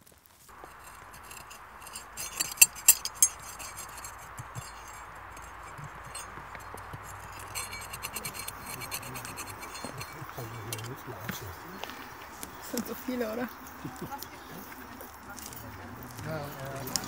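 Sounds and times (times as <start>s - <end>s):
broken glass clinking: 0.6s - 11.4s.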